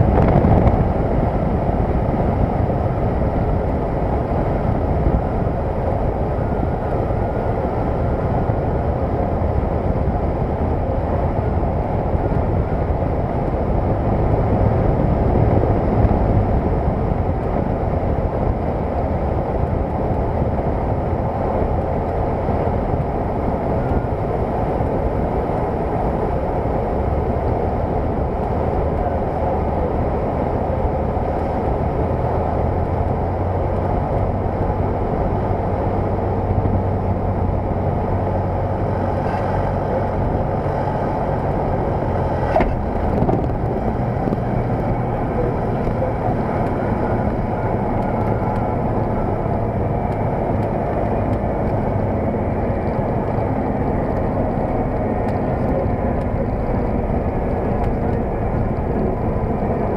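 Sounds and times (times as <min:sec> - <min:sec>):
airplane engine and propeller: 0:00.0 - 0:59.9
wind noise: 0:00.0 - 0:59.9.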